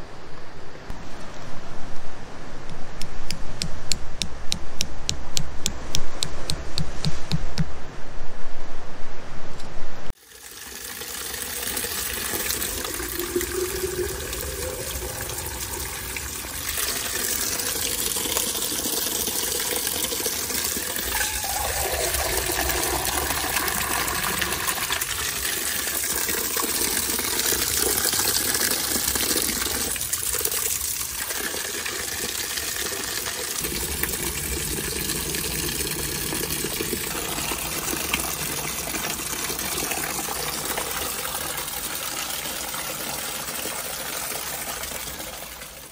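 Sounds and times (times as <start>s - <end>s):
water running into plastic bottle: 10.2s - 45.7s.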